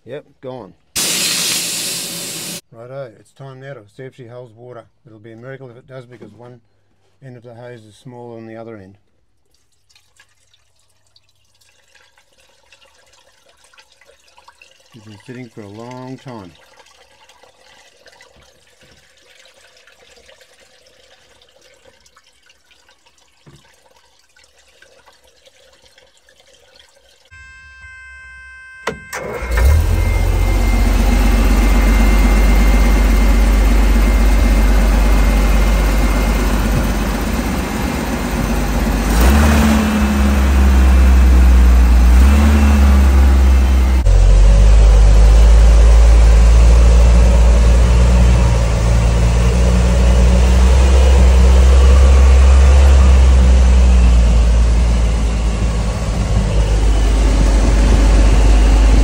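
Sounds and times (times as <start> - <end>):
buzzing tone: 27.3 - 40.8
truck engine running: 27.4 - 59.0.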